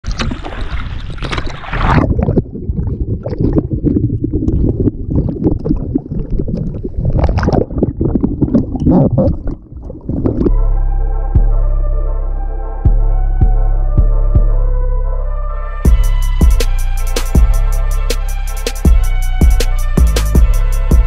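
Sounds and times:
river water splashing: 0.0 - 2.2
music: 10.5 - 21.0.

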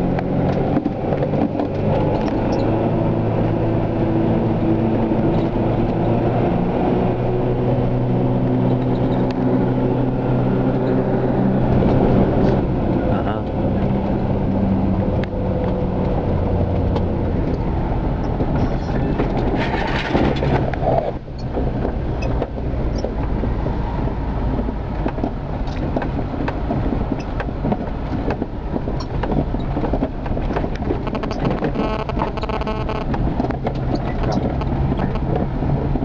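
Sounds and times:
engine and tyre rumble: 0.0 - 36.0
small rattles and knocks: 0.1 - 3.6, 14.9 - 36.0.

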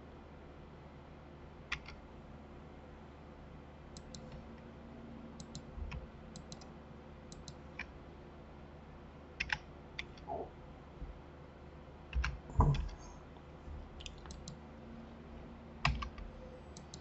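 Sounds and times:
low steady background hum: 0.0 - 17.0
computer mouse and keyboard clicks: 1.7 - 2.0, 4.0 - 4.4, 5.4 - 6.7, 7.3 - 7.9, 9.4 - 10.4, 12.1 - 13.1, 14.0 - 14.6, 15.8 - 17.0.

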